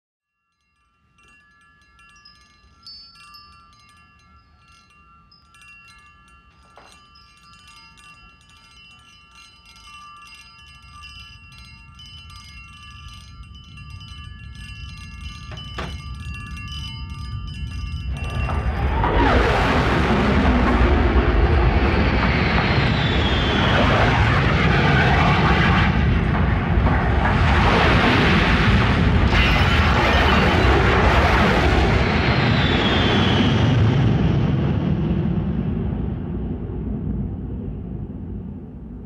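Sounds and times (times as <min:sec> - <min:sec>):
wine glasses clinking: 0:00.7 - 0:18.5
jet aircraft rumble: 0:14.9 - 0:39.0.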